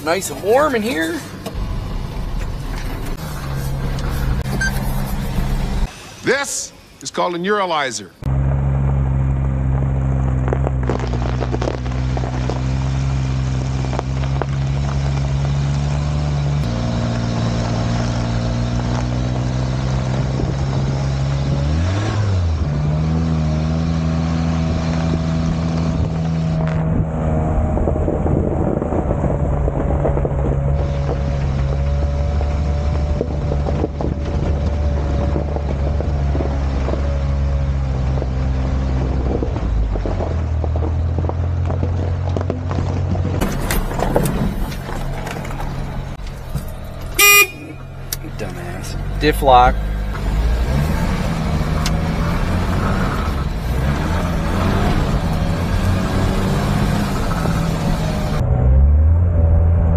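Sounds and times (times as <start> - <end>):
small truck engine running: 30.5 - 59.8.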